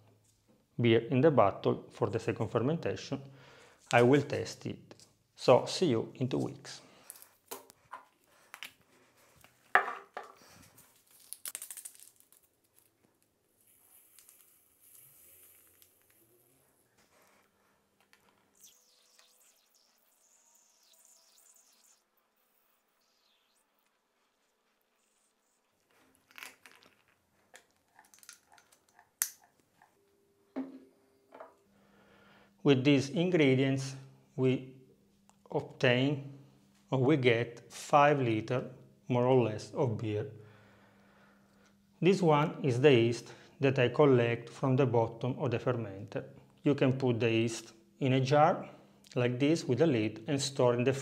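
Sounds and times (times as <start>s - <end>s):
bottle set down on wood: 9.7s - 10.4s, 30.5s - 31.5s.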